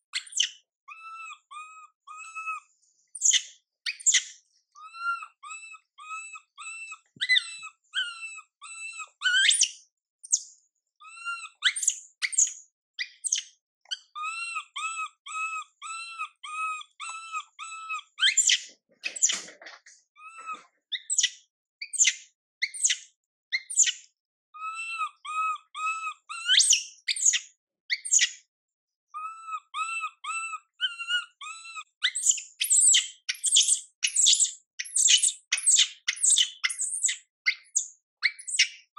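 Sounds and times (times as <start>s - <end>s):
baby monkey whimpering: 0.2s - 9.7s, 11.0s - 12.5s, 13.2s - 19.4s, 20.2s - 21.3s, 24.6s - 27.4s, 29.1s - 38.7s
baby monkey screaming: 0.2s - 10.4s, 11.0s - 19.5s, 20.2s - 21.3s, 24.6s - 28.4s, 29.2s - 38.8s.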